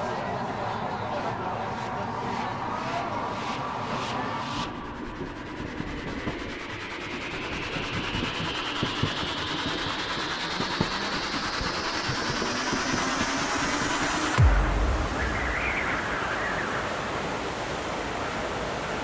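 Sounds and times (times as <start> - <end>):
high whine rising in pitch: 2.2 - 18.4
machine rumbling: 5.7 - 17.0.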